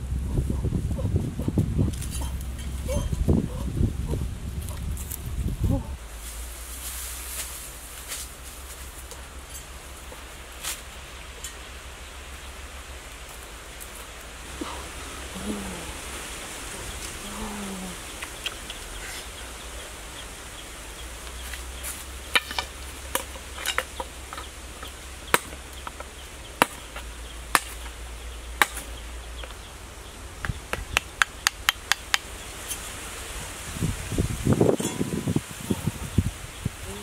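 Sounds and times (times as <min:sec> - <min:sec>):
steady background hiss: 0:00.0 - 0:37.0
cleaver chopping bamboo: 0:22.3 - 0:28.0, 0:28.6 - 0:29.6, 0:30.4 - 0:32.3.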